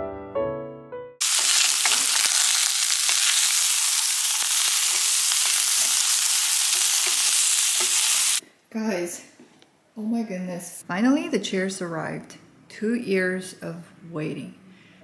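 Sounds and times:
music: 0.0 - 1.2
vegetables sizzling in a pan: 1.2 - 8.4.

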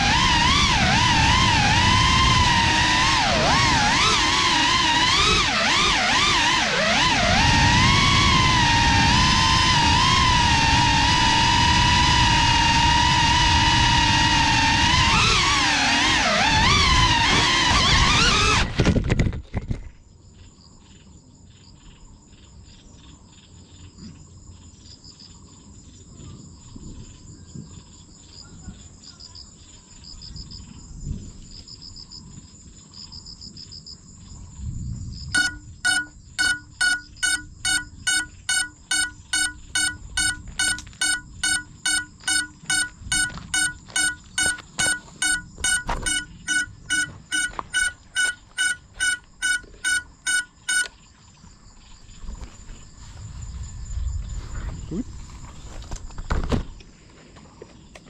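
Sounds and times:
insect buzzing: 0.0 - 18.8, 35.4 - 51.1
locator beeper beeps: 35.4 - 51.0.

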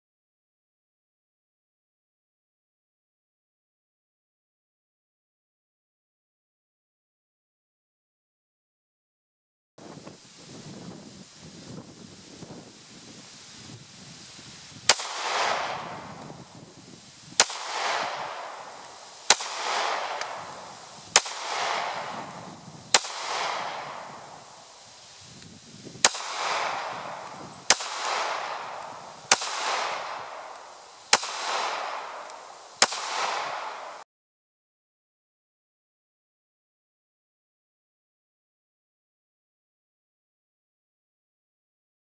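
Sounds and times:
pistol shots with ringing echo: 14.9 - 16.4, 17.4 - 24.7, 26.0 - 34.0.

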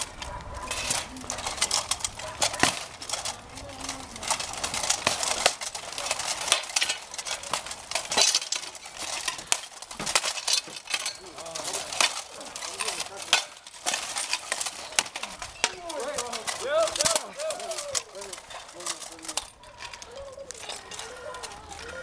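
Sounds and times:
metal armour and weapons clanking: 0.0 - 22.0.

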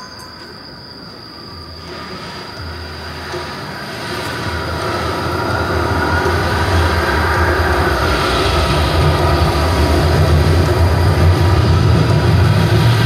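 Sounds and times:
rain hissing: 1.7 - 13.0
low thunder rumble: 2.7 - 13.0.

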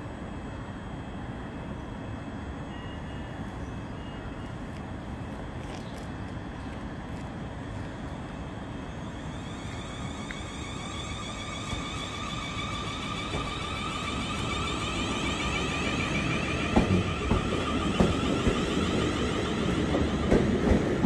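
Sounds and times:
electric train rumble and hum: 0.0 - 21.0
electric train whine rising: 7.1 - 21.0.

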